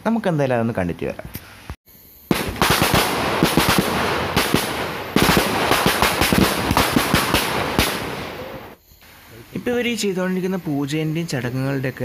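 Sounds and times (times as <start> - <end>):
firecrackers crackling: 2.3 - 8.8.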